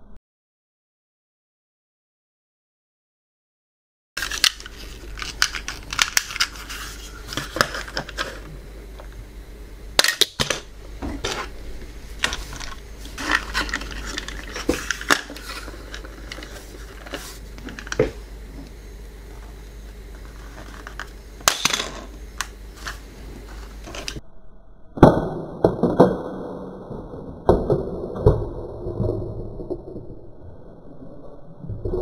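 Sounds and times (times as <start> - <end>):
plastic toy pieces clicking: 4.2 - 6.6.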